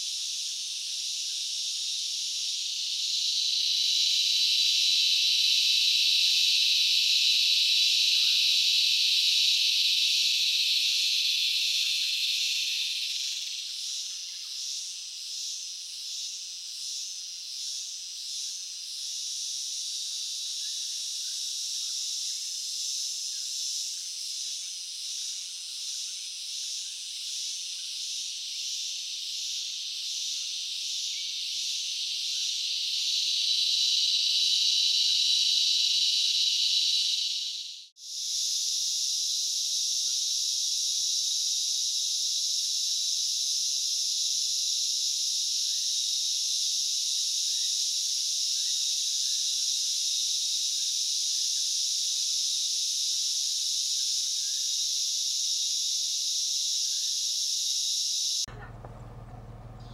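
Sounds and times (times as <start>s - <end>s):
insects buzzing: 0.0s - 59.9s.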